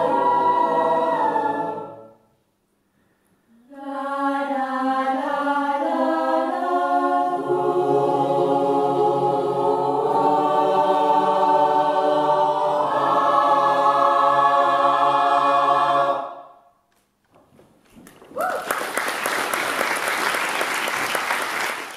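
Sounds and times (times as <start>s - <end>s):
choir singing a cappella: 0.0s - 2.3s, 3.5s - 16.7s
audience applause: 18.1s - 21.9s.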